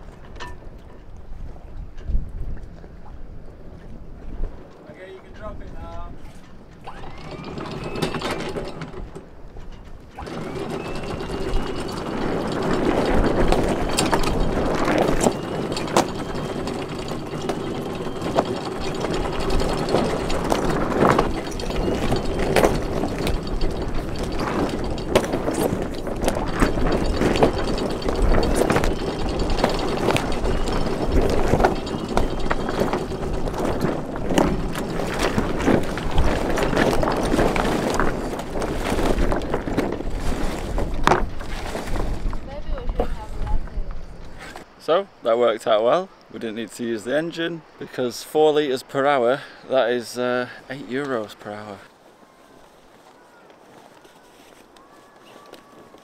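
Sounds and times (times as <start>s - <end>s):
deck gear clicking and rattling: 4.7s - 44.7s.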